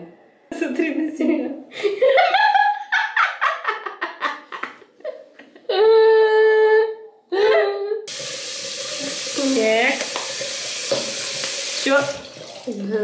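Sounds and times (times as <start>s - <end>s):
girl laughing: 1.8s - 8.1s.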